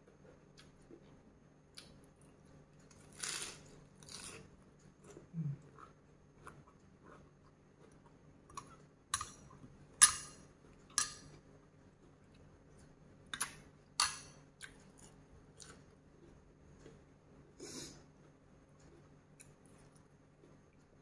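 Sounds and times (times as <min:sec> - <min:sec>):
quiet chewing: 0:00.0 - 0:09.8, 0:14.6 - 0:21.0
metal spoon clinking on glass bowl: 0:09.2 - 0:10.4, 0:11.0 - 0:11.3, 0:14.0 - 0:14.4.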